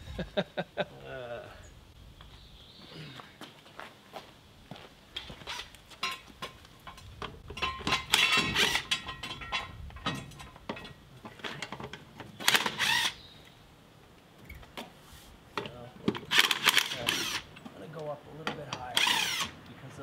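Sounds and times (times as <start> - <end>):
cordless power tool whirring: 12.4 - 13.2, 19.0 - 19.6.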